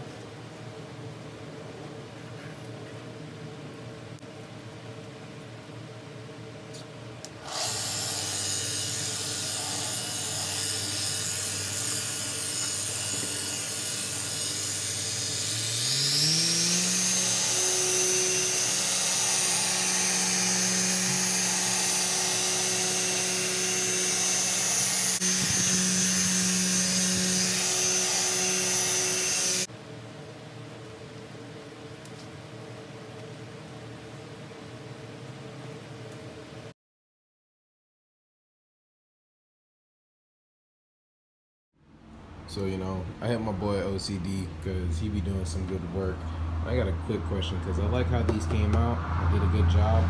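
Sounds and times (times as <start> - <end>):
electric polisher whine: 7.4 - 29.7.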